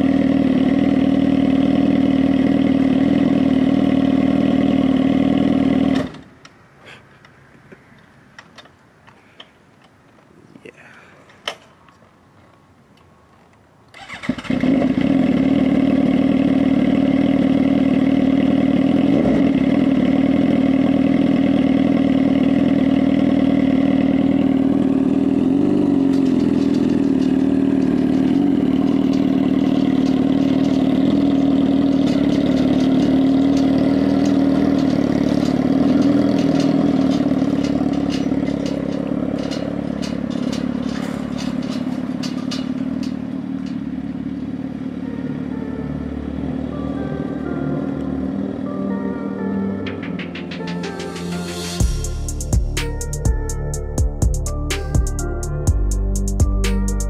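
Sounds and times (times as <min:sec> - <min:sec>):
motorcycle engine idling: 0:00.0 - 0:06.1, 0:14.0 - 0:51.0, 0:51.8 - 0:57.0.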